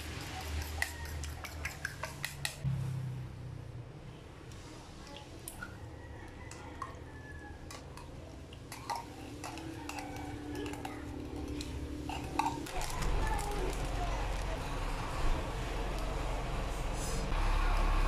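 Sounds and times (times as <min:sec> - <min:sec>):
metal spoon scraping tin can: 0:08.7 - 0:13.9.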